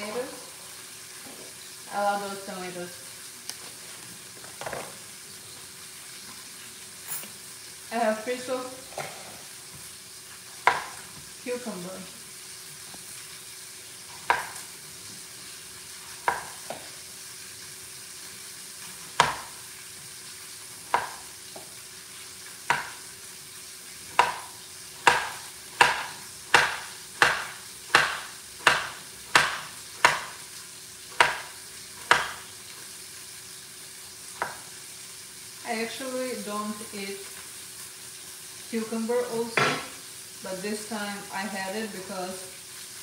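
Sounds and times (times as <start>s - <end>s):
knife chopping cucumber on board: 10.6s - 11.0s, 14.2s - 14.6s, 16.2s - 16.8s, 19.2s - 19.6s, 20.9s - 21.2s, 22.7s - 23.0s, 24.1s - 30.4s, 31.2s - 32.4s.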